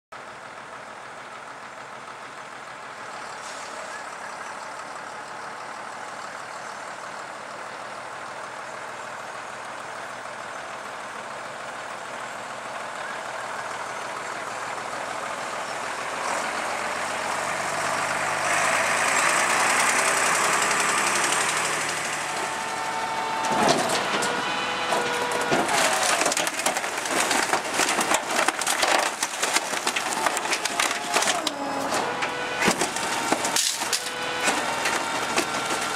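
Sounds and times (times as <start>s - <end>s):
garbage truck diesel engine running: 0.2s - 35.9s
compactor crushing rubbish: 14.0s - 35.9s
sharp cracks of wood crushed: 15.4s - 35.9s.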